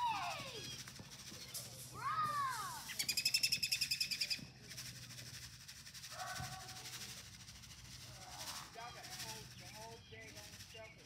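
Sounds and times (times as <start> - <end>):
rapid high bird trill: 0.0 - 5.4
bird whistle: 2.8 - 4.4.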